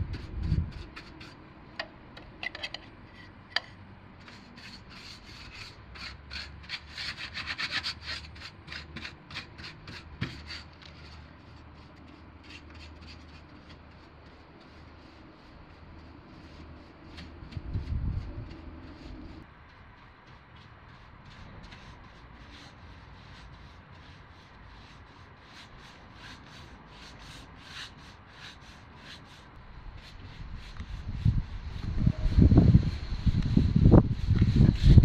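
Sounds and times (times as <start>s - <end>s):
paintbrush scraping sheet metal: 2.2s - 35.0s.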